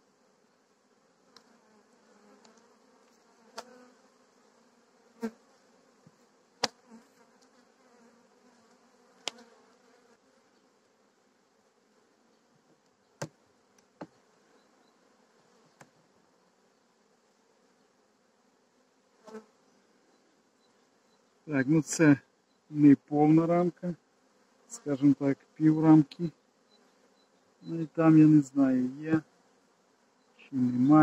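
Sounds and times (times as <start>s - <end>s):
honeybees humming: 0.0s - 31.0s
hive tool clicking on wood: 6.6s - 6.8s, 9.2s - 9.5s, 12.8s - 14.2s.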